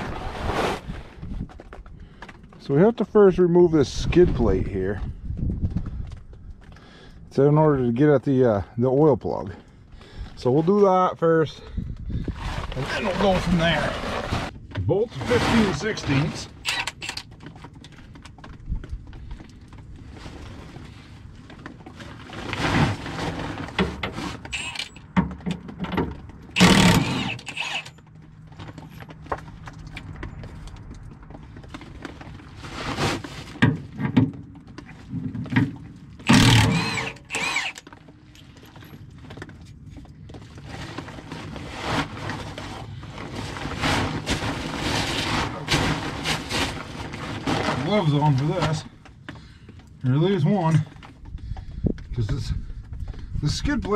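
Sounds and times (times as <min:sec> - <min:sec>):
loud noisy bursts: 0:26.6 - 0:27.9, 0:36.2 - 0:37.8.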